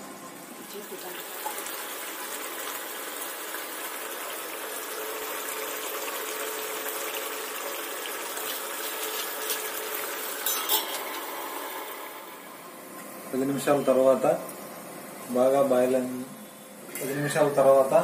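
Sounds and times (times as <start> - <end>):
curry bubbling in a pan: 0.6 - 10.5
metal lid clattering on pan: 10.4 - 11.1.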